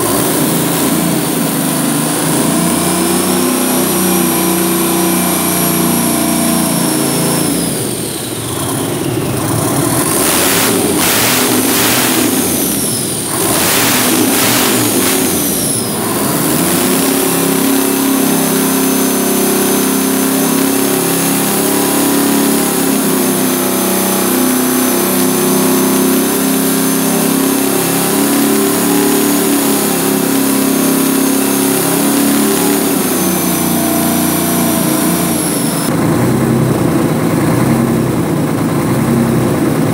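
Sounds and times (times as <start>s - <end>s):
diesel engine revving: 0.0s - 39.9s
high engine whine: 0.0s - 39.9s.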